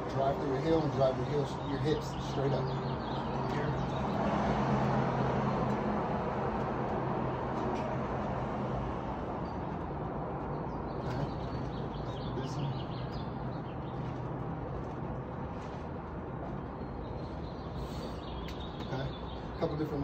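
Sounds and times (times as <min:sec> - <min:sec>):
road traffic rumble: 0:00.0 - 0:20.0
bird chirps: 0:10.5 - 0:14.3, 0:16.6 - 0:20.0.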